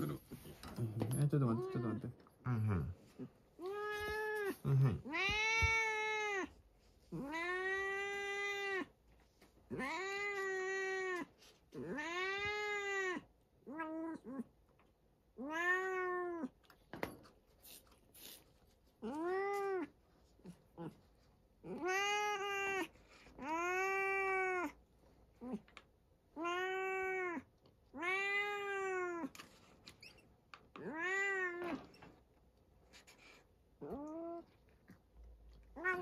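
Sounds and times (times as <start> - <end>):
cat meowing: 3.6 - 9.0, 9.7 - 14.4, 15.4 - 16.6, 19.0 - 21.0, 21.6 - 24.8, 26.3 - 29.4, 30.8 - 32.0, 35.6 - 36.0.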